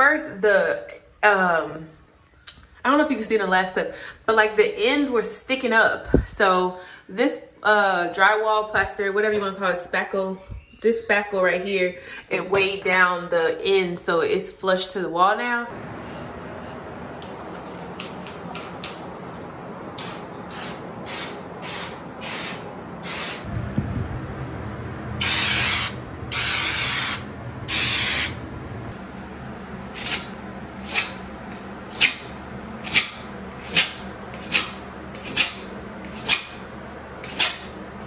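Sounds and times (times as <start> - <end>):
hissing sprays: 20.0 - 23.5, 25.2 - 28.4.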